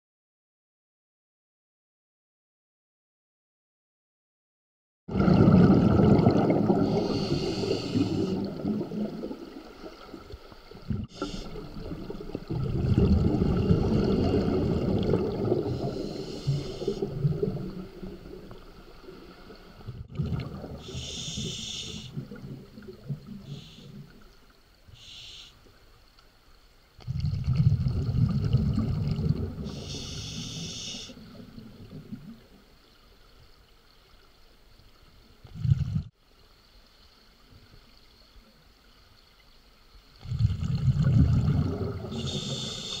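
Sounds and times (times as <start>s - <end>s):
rumbling exhaled bubbles: 5.1s - 24.2s, 27.0s - 30.0s, 31.2s - 32.6s, 35.4s - 36.1s, 40.2s - 43.0s
hissing regulator inhalations: 6.8s - 8.6s, 11.1s - 11.8s, 15.7s - 17.2s, 20.8s - 22.2s, 23.4s - 24.1s, 25.0s - 25.6s, 29.7s - 31.2s, 42.1s - 43.0s.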